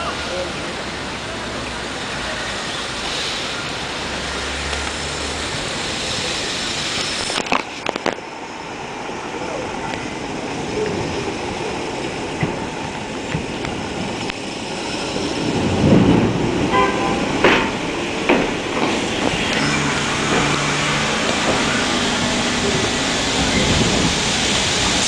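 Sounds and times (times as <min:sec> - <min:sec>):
train cars humming: 0:00.0 - 0:25.0
train wheels rumbling on rails: 0:00.0 - 0:25.0
wheels clacking over rail joints: 0:09.9 - 0:25.0.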